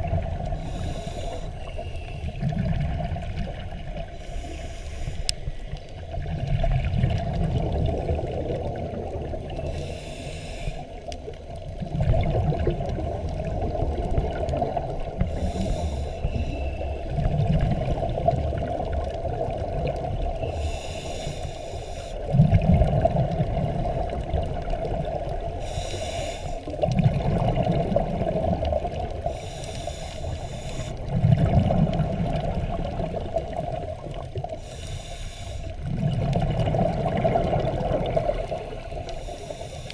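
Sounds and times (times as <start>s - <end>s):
exhaled bubbles underwater: 0.0s - 21.2s, 22.1s - 34.7s, 35.6s - 39.9s
regulator inhale hiss: 0.4s - 2.5s, 4.0s - 6.1s, 9.5s - 11.4s, 15.1s - 17.2s, 20.4s - 22.4s, 25.4s - 26.8s, 29.2s - 31.2s, 33.4s - 35.9s, 38.3s - 39.9s.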